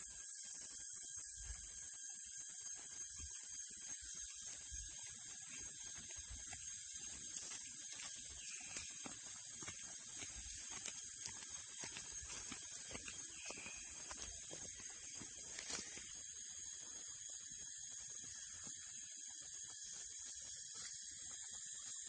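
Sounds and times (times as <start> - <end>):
forest insects droning: 0.0 - 22.0
footsteps in dry leaves: 3.2 - 16.9.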